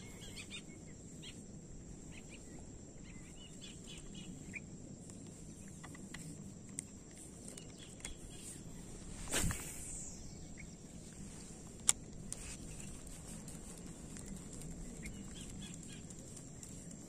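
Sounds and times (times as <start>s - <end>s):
faint bird chirps: 0.0s - 6.3s, 7.3s - 11.7s
high insect drone: 0.0s - 17.0s.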